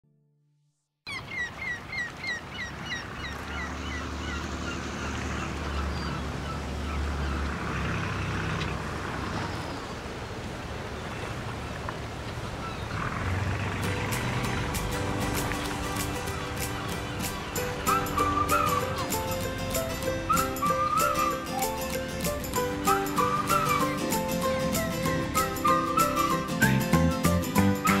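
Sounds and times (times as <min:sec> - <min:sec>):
gulls calling: 0:01.1 - 0:10.0, 0:12.1 - 0:28.0
surf washing: 0:08.9 - 0:28.0.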